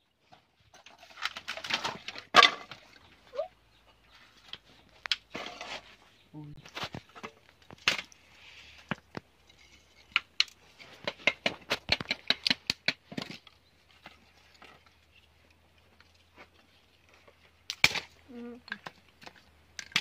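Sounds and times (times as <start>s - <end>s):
wooden clicks and knocks: 10.0s - 14.8s.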